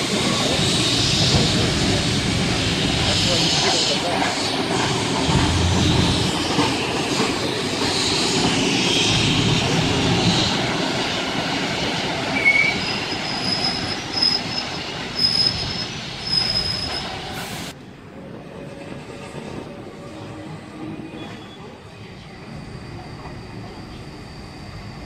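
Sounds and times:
train wheels rumbling on rails: 0:00.0 - 0:25.0
wheel squeals: 0:12.2 - 0:17.4, 0:20.8 - 0:24.6.

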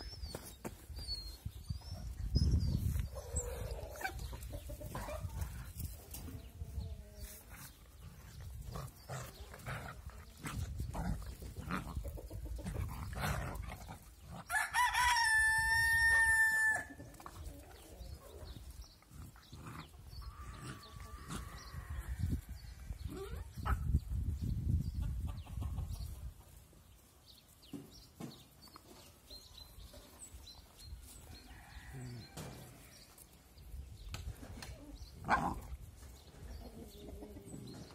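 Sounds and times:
puppies scuffling on grass: 0:00.0 - 0:12.8, 0:26.0 - 0:35.2
rooster crowing: 0:14.5 - 0:17.0.

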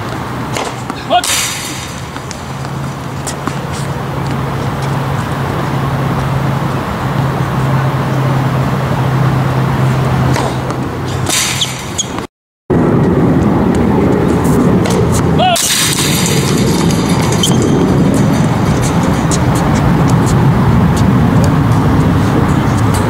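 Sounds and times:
traffic rumble: 0:00.0 - 0:23.0
tennis ball struck: 0:00.1 - 0:04.4, 0:10.2 - 0:12.3.

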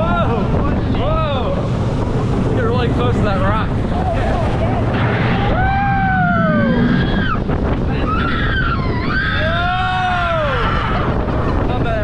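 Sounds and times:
wind buffeting microphone: 0:00.0 - 0:12.0
riders cheering woo: 0:05.5 - 0:11.2.

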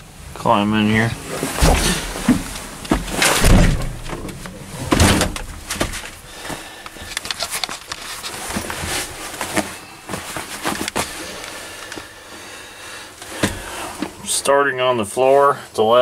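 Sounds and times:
rustling: 0:00.8 - 0:12.1
heavy thumps: 0:01.1 - 0:06.7.

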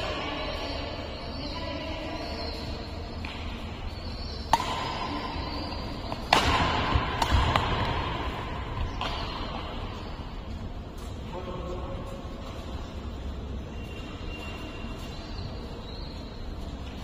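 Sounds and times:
racket striking shuttlecock: 0:03.2 - 0:09.7.

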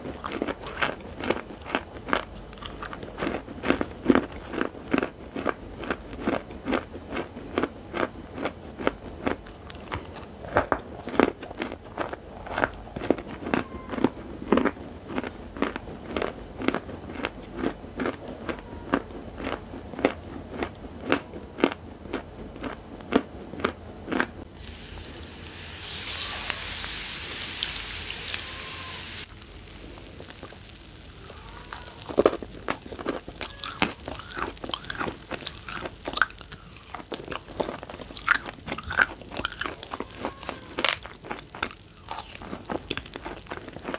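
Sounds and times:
chalk crunching and chewing: 0:00.0 - 0:24.3, 0:29.7 - 0:43.9
steady hiss: 0:24.5 - 0:36.2.

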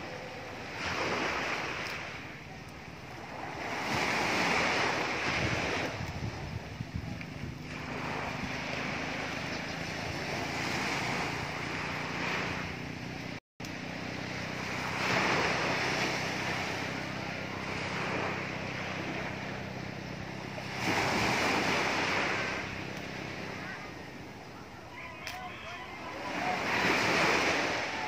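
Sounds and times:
wind on the microphone: 0:00.0 - 0:13.4
low engine hum: 0:00.0 - 0:28.0
sea waves washing ashore: 0:00.0 - 0:28.0.

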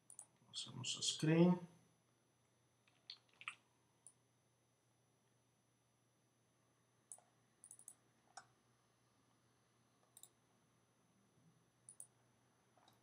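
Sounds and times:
computer mouse and keyboard clicks: 0:02.8 - 0:04.2, 0:07.1 - 0:08.5, 0:10.0 - 0:10.4, 0:11.9 - 0:12.1, 0:12.8 - 0:13.0.

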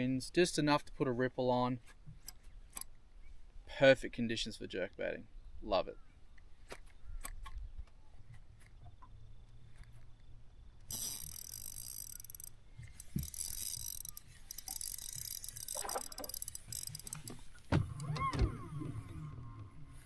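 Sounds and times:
fishing reel whirring: 0:10.8 - 0:18.2.

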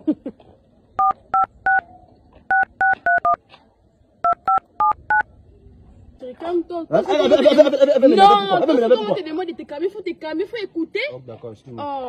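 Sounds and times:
phone keypad touch-tones: 0:01.0 - 0:01.8, 0:02.5 - 0:03.4, 0:04.2 - 0:05.2.

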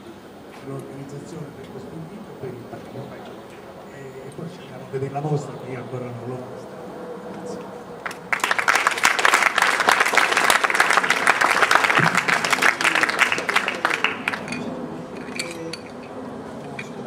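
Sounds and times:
faint voices: 0:00.0 - 0:08.3, 0:10.5 - 0:17.0
audience applauding: 0:08.0 - 0:14.7.

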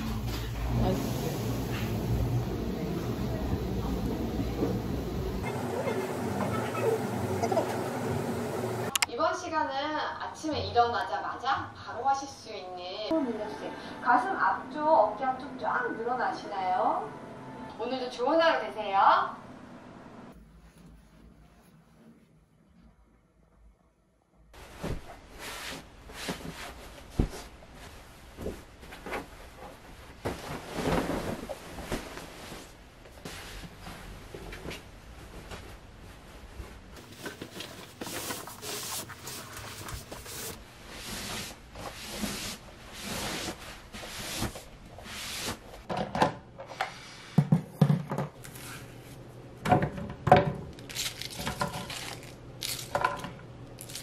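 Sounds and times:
bedding rustling and flapping: 0:24.6 - 0:45.9.

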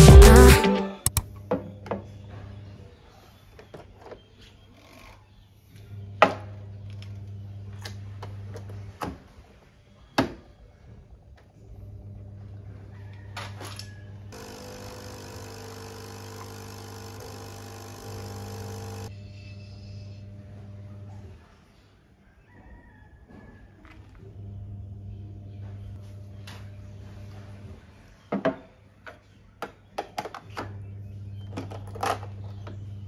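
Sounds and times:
coffee machine pump buzzing: 0:14.4 - 0:19.1
low hum: 0:14.4 - 0:19.2.

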